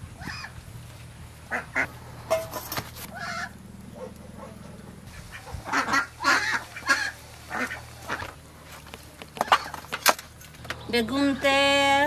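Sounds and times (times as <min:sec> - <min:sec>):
ducks quacking: 0:01.5 - 0:02.4, 0:03.1 - 0:08.4.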